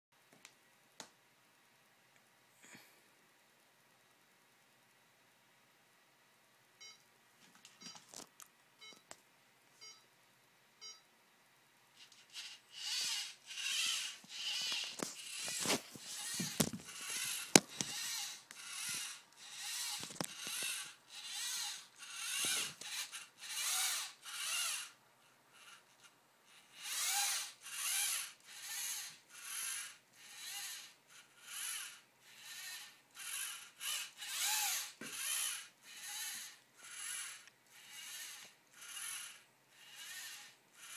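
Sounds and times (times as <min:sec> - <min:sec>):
robot motors whirring: 0:12.0 - 0:25.0, 0:25.6 - 0:40.9.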